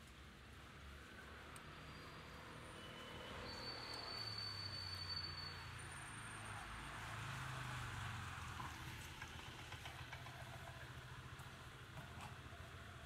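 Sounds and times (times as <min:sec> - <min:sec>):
low hum of engines: 0:00.0 - 0:13.0
traffic on wet roads: 0:00.0 - 0:13.0.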